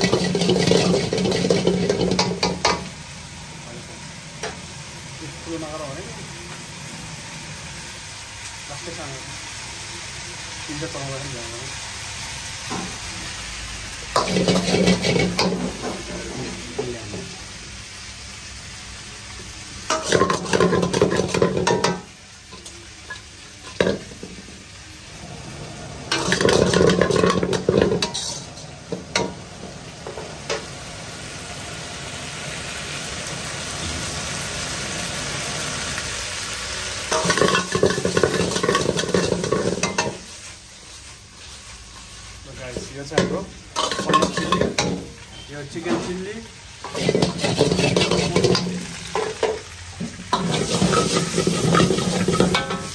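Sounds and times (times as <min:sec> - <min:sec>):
metal ladle scraping a wok: 0:00.0 - 0:02.9, 0:14.1 - 0:15.9, 0:25.8 - 0:29.4, 0:37.1 - 0:40.4, 0:43.2 - 0:46.2, 0:46.8 - 0:52.9
food sizzling in hot oil: 0:00.0 - 0:52.9.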